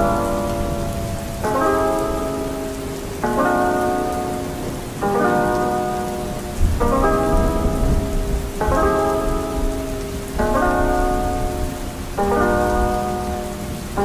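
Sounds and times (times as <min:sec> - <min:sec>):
soft music: 0:00.0 - 0:14.0
steady rain: 0:00.0 - 0:14.0
low rumble of thunder: 0:06.5 - 0:13.1.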